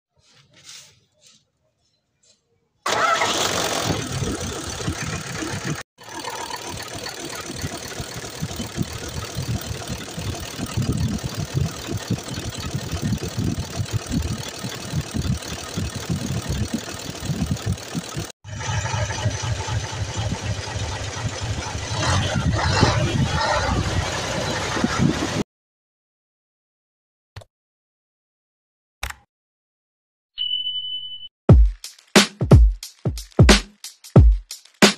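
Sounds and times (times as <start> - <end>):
diesel truck engine idling: 2.9 - 22.1
cooling fan spinning: 2.9 - 25.4.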